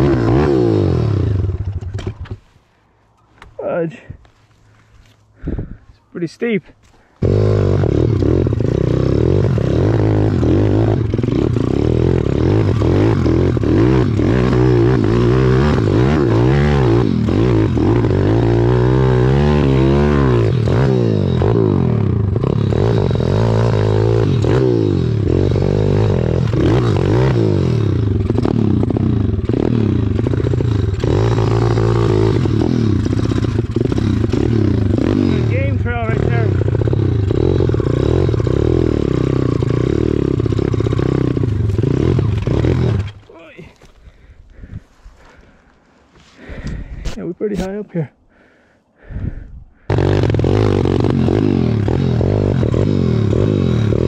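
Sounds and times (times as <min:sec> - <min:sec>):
small motorbike engine revving: 0:00.0 - 0:02.4, 0:07.2 - 0:43.3, 0:49.8 - 0:54.0.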